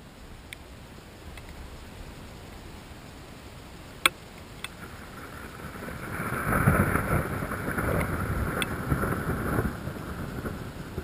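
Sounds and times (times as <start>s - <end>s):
thunder rumbling: 4.8s - 11.0s.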